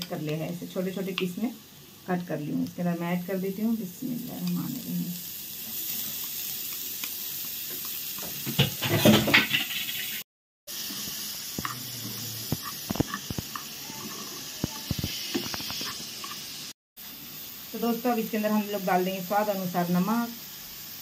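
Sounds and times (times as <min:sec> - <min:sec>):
frying pan sizzling: 0:00.0 - 0:21.0
spatula scraping and knocking pan: 0:07.8 - 0:10.2, 0:10.8 - 0:16.5.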